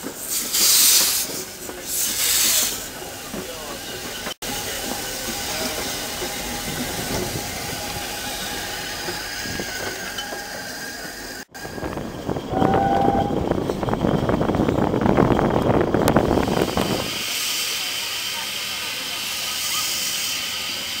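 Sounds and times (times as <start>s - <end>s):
train clattering: 0.0s - 19.6s
steam locomotive moving slowly: 0.0s - 21.0s
brief steady tone: 12.5s - 13.6s.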